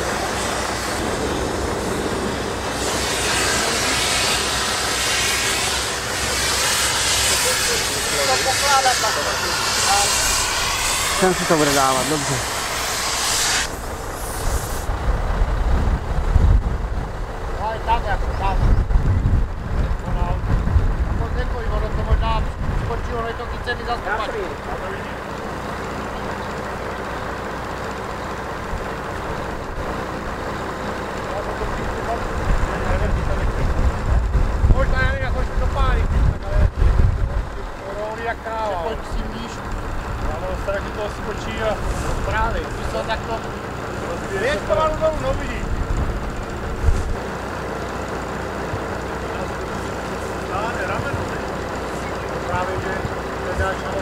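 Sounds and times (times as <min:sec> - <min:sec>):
hiss: 0:00.0 - 0:15.0, 0:41.8 - 0:42.4
diesel engine droning: 0:00.0 - 0:54.0.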